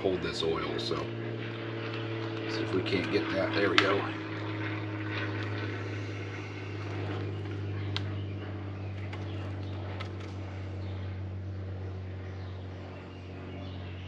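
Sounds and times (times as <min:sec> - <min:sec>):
low machine hum: 0:00.0 - 0:14.0
faint sharp clicks: 0:07.9 - 0:08.1.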